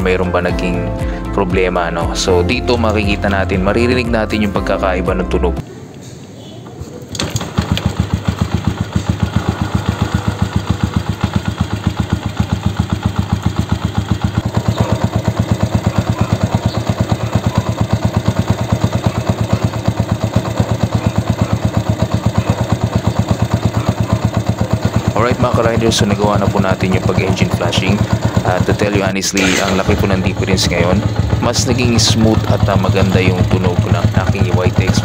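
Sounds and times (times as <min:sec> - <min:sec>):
motorcycle kick-start: 0:07.0 - 0:35.0
motorcycle engine idling: 0:07.3 - 0:35.0.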